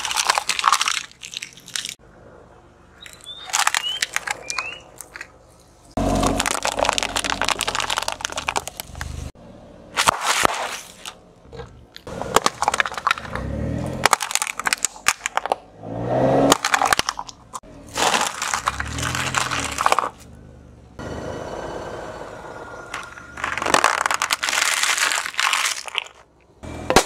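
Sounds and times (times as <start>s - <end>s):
tyre crushing plastic bottles: 0.0s - 2.0s, 6.0s - 9.3s, 12.1s - 15.7s, 16.4s - 20.2s, 22.9s - 26.3s.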